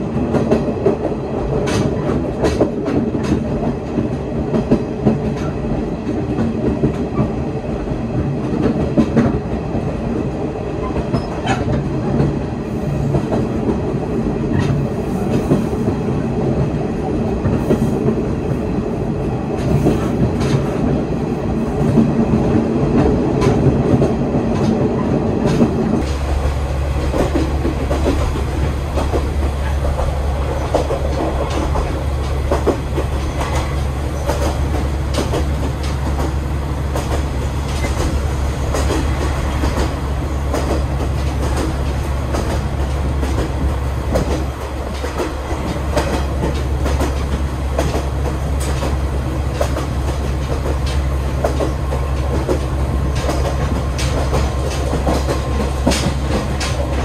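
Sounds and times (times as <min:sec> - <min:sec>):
railcar rumble: 0:00.0 - 0:57.0
wheels clicking over rail joints: 0:23.0 - 0:57.0.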